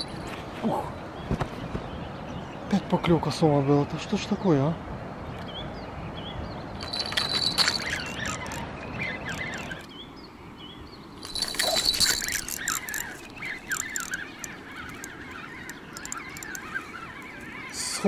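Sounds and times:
birds chirping: 0.0 - 18.0
rapid clicking: 11.2 - 17.3.

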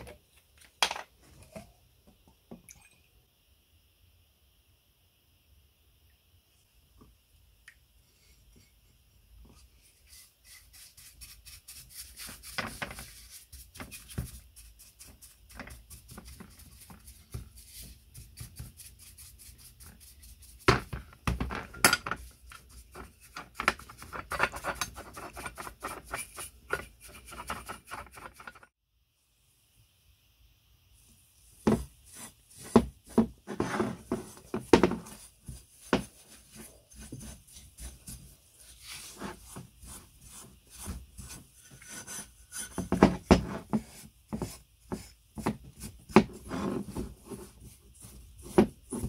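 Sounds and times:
brush scrubbing metal: 9.6 - 20.7, 22.2 - 28.7.

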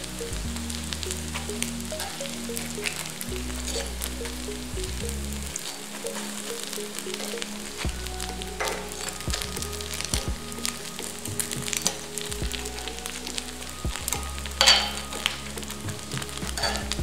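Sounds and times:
background music with bass: 0.0 - 17.0
hot oil sizzling: 0.0 - 17.0
metal spoons clicking and scraping: 1.3 - 4.4, 14.1 - 17.0.

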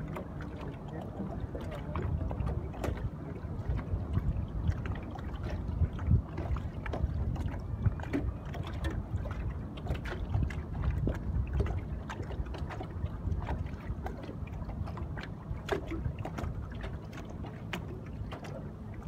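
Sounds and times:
waves lapping against boat hull: 0.0 - 19.0
wind rumble on microphone: 0.0 - 19.0
little splashes and clicks: 6.4 - 19.0.

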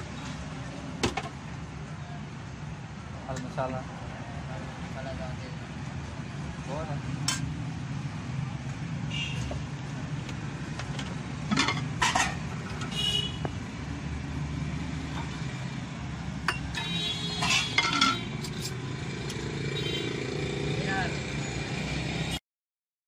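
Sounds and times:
spoons clinking against metal bowls: 11.5 - 12.4, 16.5 - 18.8.

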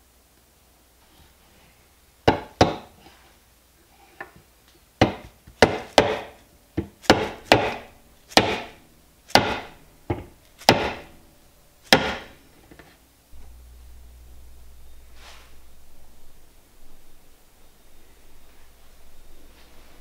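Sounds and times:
rubber mallet knocking on wood: 2.3 - 2.9, 5.0 - 8.7, 9.3 - 11.1, 11.9 - 12.3.

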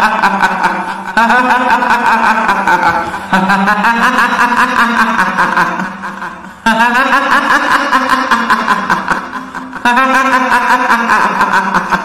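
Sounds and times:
woman's ghostly cackling laugh: 0.0 - 12.0.

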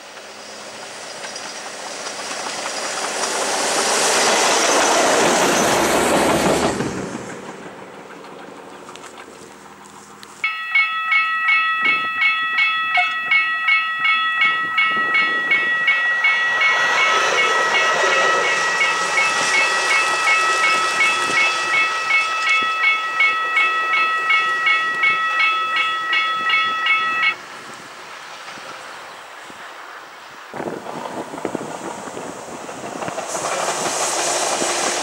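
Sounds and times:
diesel railcar passing: 0.0 - 35.0
level crossing bell ringing: 10.4 - 19.3, 20.0 - 27.4.

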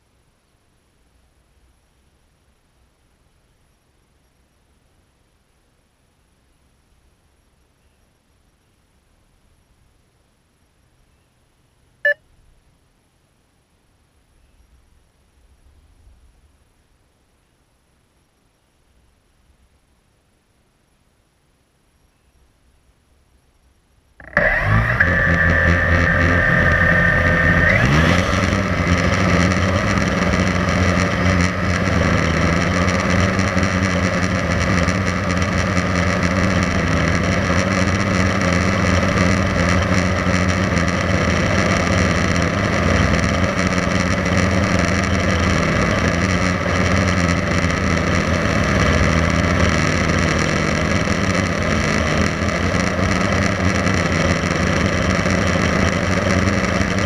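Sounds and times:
drone motors and propellers whine: 24.2 - 57.0.

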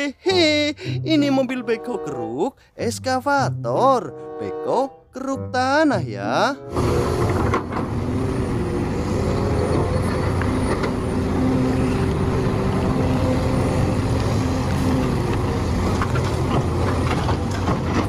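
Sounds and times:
excavator diesel engine drone: 6.6 - 18.0.

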